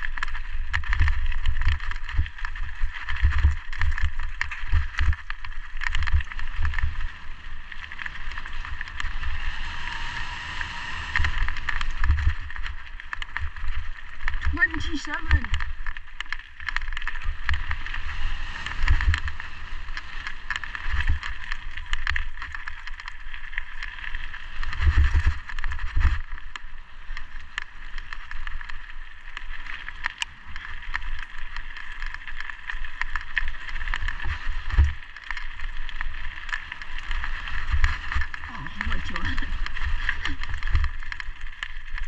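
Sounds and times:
bike rattling over rough ground: 0:00.0 - 0:42.0
tyres hissing over loose stones: 0:35.2 - 0:42.0.

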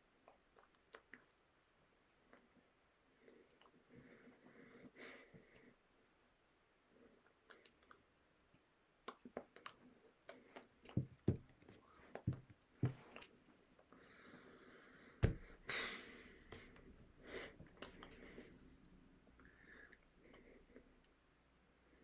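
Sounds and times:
person breathing: 0:03.2 - 0:05.8, 0:13.9 - 0:21.0
hands knocking and rustling: 0:10.8 - 0:13.3, 0:15.2 - 0:15.6.

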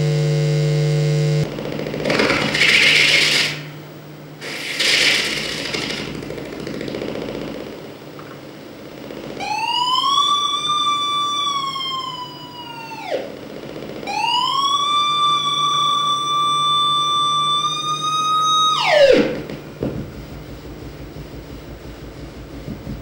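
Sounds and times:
steady low hum: 0:00.0 - 0:23.0
siren-like synthesized tone: 0:09.4 - 0:13.4, 0:14.0 - 0:19.6.

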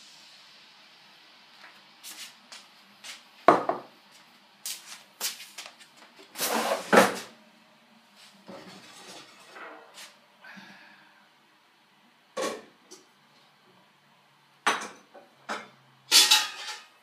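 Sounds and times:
kitchen things rattling: 0:16.1 - 0:17.0.

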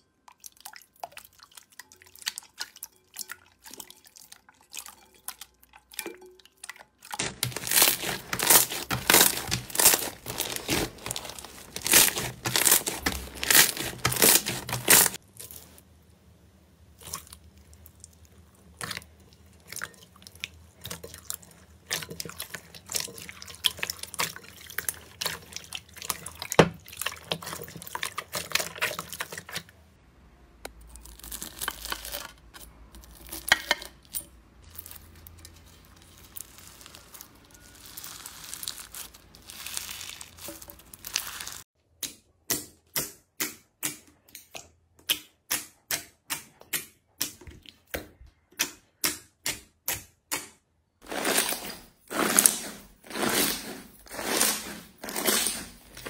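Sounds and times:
slime squelching and crackling: 0:05.8 - 0:15.9, 0:16.9 - 0:29.8, 0:30.7 - 0:41.7, 0:51.0 - 0:56.0
slime crinkling: 0:07.0 - 0:15.9, 0:34.6 - 0:41.7.

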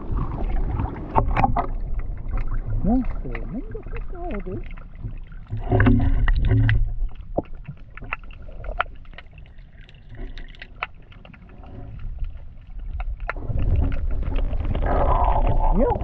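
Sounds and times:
muffled underwater water movement: 0:00.0 - 0:16.0
low rumble: 0:11.8 - 0:16.0.

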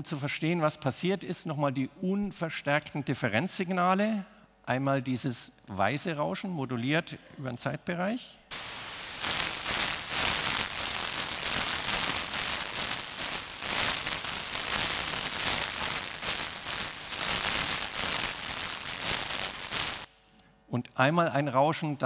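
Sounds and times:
pulsing white noise hiss: 0:08.5 - 0:20.2.

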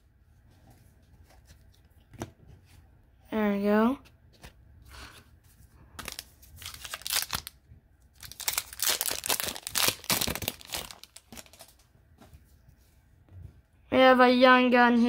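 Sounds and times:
foil wrapper tearing and crinkling: 0:06.0 - 0:07.6, 0:08.2 - 0:11.8.

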